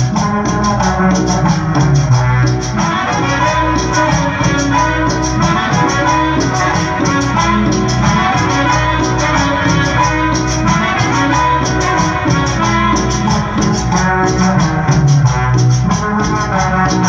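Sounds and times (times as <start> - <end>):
cumbia music over sound system: 0.0 - 17.0.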